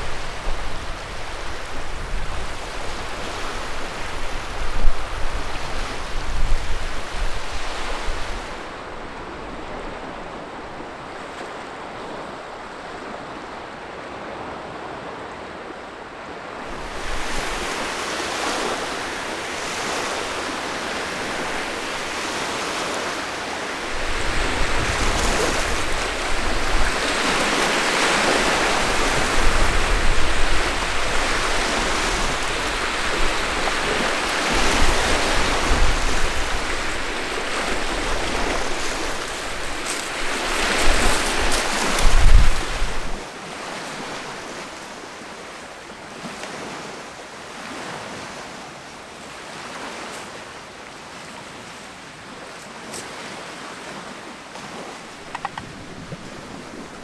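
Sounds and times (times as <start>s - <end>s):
wind buffeting microphone: 0.0s - 11.2s, 23.8s - 43.2s, 55.1s - 57.0s
wind blowing: 0.0s - 45.3s, 54.5s - 57.0s
waves washing in: 0.0s - 57.0s.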